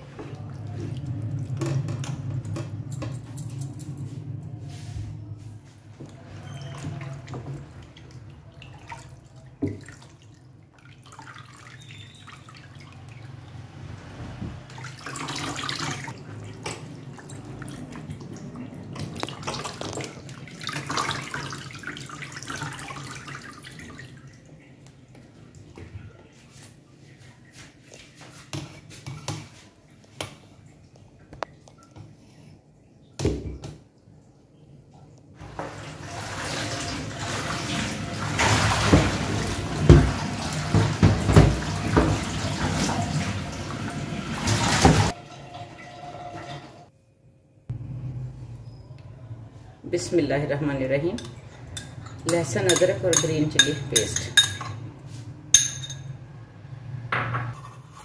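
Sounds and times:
water splashing in a sink: 0.0s - 3.2s, 6.0s - 26.0s, 35.4s - 46.8s
tap water pouring: 14.4s - 25.9s, 35.4s - 46.7s.

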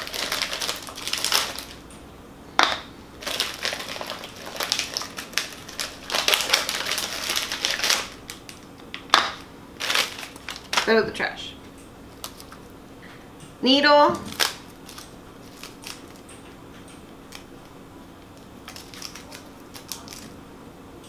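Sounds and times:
plastic wrappers crinkling and tearing: 0.0s - 1.8s, 3.2s - 8.8s, 9.8s - 11.0s, 12.1s - 12.7s, 14.2s - 16.3s, 17.3s - 17.5s, 18.3s - 20.4s.

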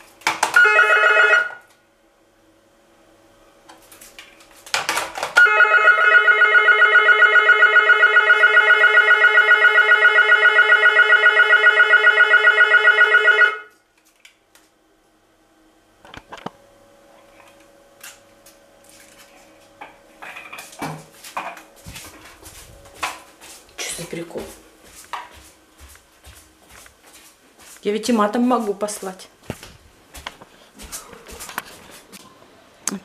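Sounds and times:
intercom warbling electronic ring: 0.6s - 1.6s, 5.4s - 13.7s.

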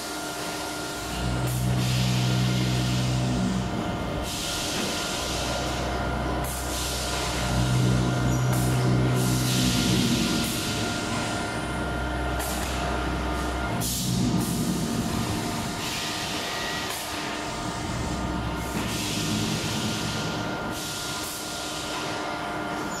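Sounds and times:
machinery hum and rumble: 0.0s - 23.0s
machinery hiss: 0.4s - 22.2s.

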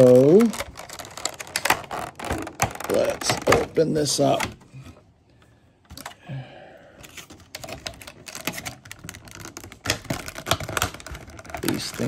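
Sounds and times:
plastic packaging clicking: 0.0s - 4.6s, 7.0s - 12.0s.

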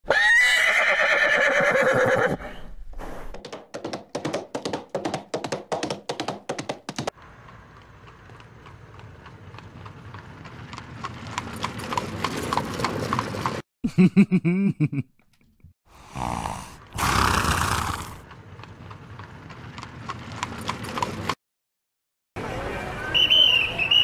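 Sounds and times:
horse whinnying: 0.0s - 2.6s, 16.2s - 18.2s
clip-clop of hooves: 3.3s - 13.6s, 17.7s - 21.4s.

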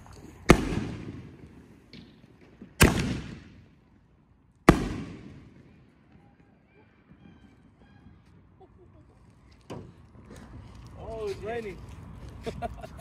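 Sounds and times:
firework bangs with echo: 0.4s - 3.8s, 4.7s - 6.4s.

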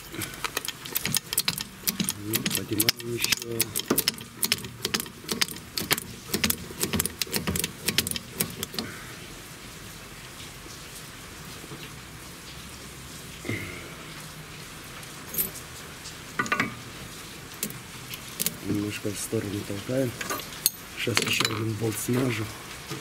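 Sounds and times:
car jack metallic clicks: 0.0s - 8.9s
low steady hiss: 0.0s - 23.0s.

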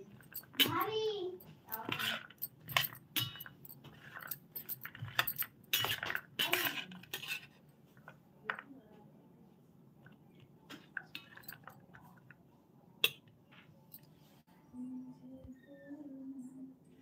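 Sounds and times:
metal spoon scraping steel plate: 1.7s - 7.6s.

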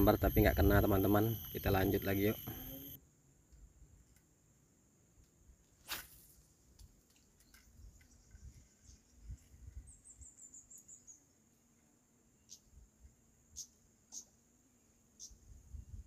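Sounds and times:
high chirps: 0.0s - 3.0s
high-pitched insect drone: 0.0s - 3.0s.

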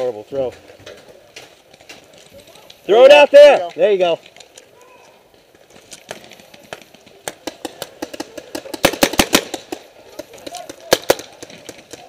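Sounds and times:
paintball markers firing: 5.9s - 12.0s.

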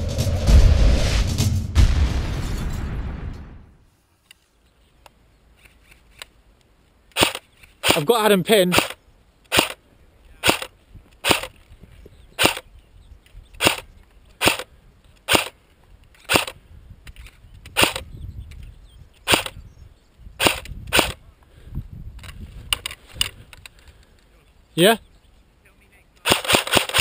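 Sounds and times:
airsoft gun firing single shots: 7.2s - 8.1s, 8.7s - 9.8s, 10.4s - 11.5s, 12.4s - 12.6s, 13.6s - 15.6s, 16.3s - 16.6s, 17.8s - 18.0s, 19.3s - 19.6s, 20.4s - 21.2s, 26.2s - 27.0s.

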